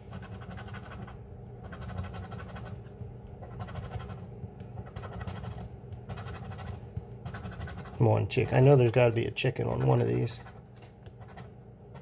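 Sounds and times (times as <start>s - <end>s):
coin scraping scratch card: 0.1s - 2.8s, 3.4s - 4.2s, 4.8s - 8.0s, 11.2s - 12.0s.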